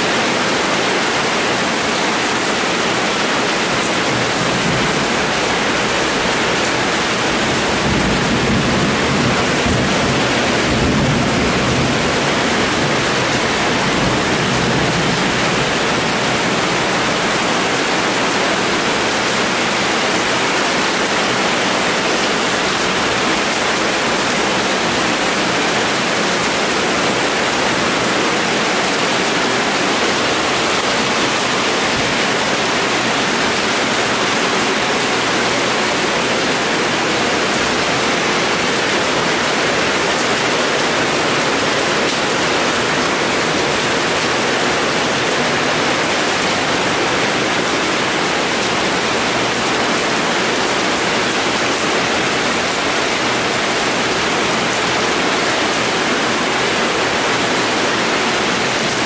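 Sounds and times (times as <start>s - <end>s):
heavy rain downpour: 0.0s - 59.0s.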